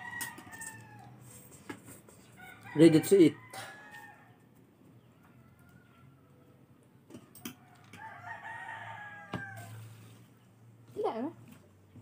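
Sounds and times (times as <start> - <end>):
faint rooster crowing: 0.0 - 1.5, 2.2 - 10.0.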